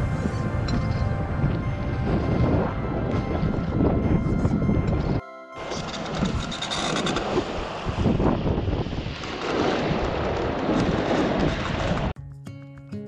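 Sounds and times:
plucked-string music: 0.0 - 6.7
wind buffeting microphone: 0.0 - 12.1.

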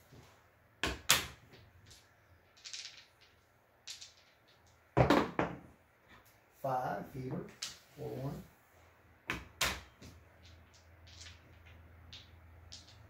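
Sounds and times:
dice clattering on a felt table: 0.8 - 5.6, 9.3 - 13.0
casino chips clicking: 1.2 - 4.8, 10.3 - 13.0.

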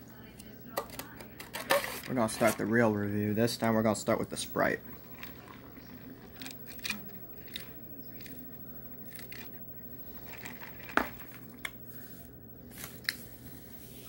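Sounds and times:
low steady hum: 0.0 - 14.0
drinking through a straw: 4.8 - 11.4.

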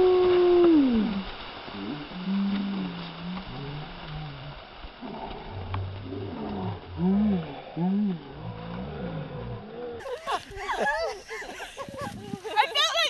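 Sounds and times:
person hooting and groaning: 0.0 - 1.2
snow falling from tree: 0.0 - 13.0.

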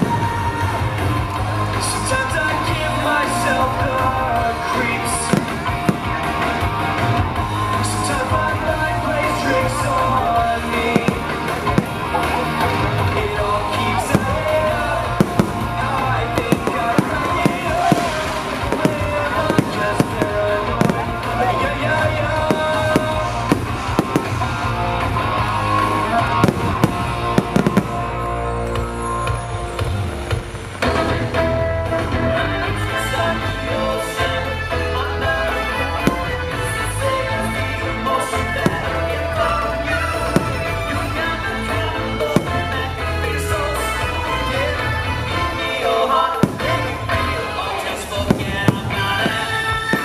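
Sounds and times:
fireworks exploding: 0.0 - 32.4, 33.0 - 50.0
music soundtrack: 0.0 - 50.0
sharp firework bangs: 14.0 - 24.7, 26.3 - 28.2, 36.0 - 36.6, 40.2 - 41.0, 46.4 - 47.5, 48.2 - 50.0.

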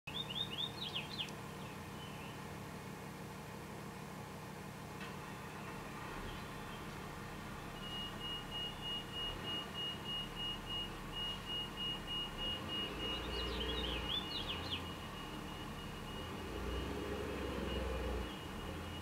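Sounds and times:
high-pitched beeps: 7.8 - 19.0.

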